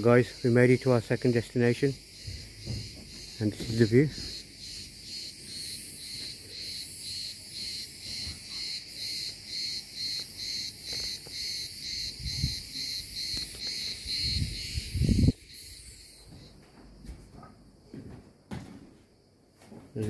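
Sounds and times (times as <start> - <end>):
cicadas buzzing: 0.0 - 18.0
low thumps: 2.2 - 3.8.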